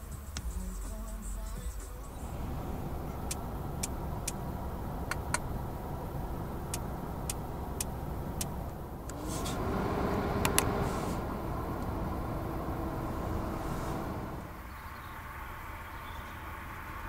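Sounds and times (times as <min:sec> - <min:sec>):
car cabin engine and road rumble: 0:00.0 - 0:17.0
sharp clicks: 0:05.1 - 0:05.5, 0:06.6 - 0:09.2.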